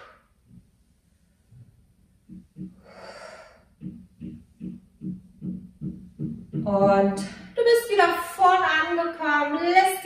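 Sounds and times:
faint low pulses: 0.4 - 7.6
woman breathing out: 2.7 - 3.8.

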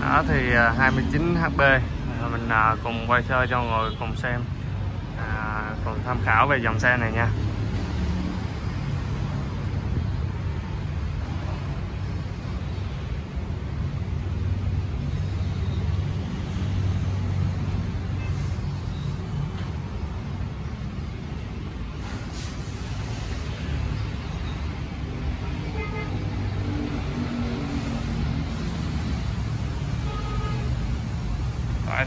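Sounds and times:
constant hiss: 27.7 - 32.0.

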